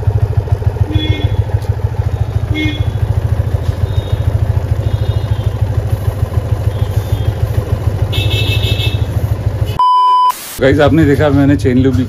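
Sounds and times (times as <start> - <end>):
motorcycle engine idling: 0.0 - 9.8
electronic beep tone: 9.8 - 10.4.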